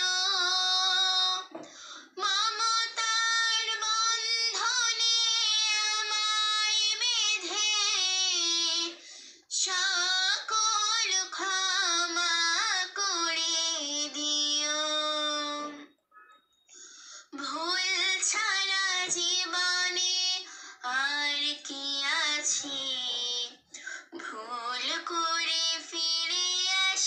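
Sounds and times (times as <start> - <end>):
girl singing unaccompanied: 0.0 - 16.0, 17.3 - 27.0.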